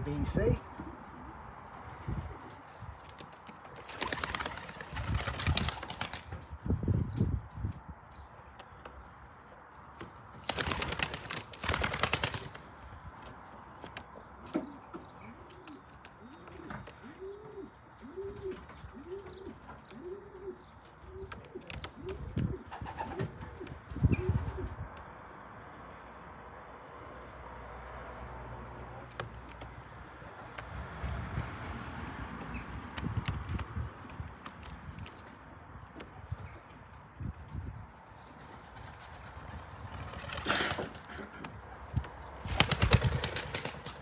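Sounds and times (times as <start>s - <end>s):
pigeon wings flapping: 3.0s - 6.4s, 10.3s - 12.7s, 38.6s - 41.1s, 42.4s - 44.0s
pigeon cooing: 15.2s - 24.8s.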